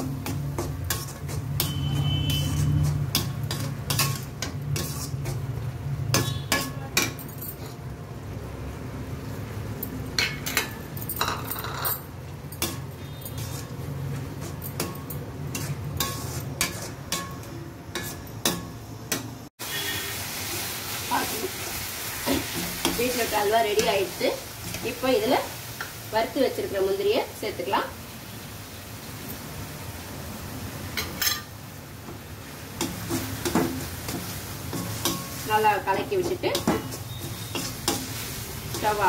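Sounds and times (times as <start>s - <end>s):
metal spatula scraping pan: 0.0s - 7.0s, 12.6s - 18.6s, 32.8s - 39.0s.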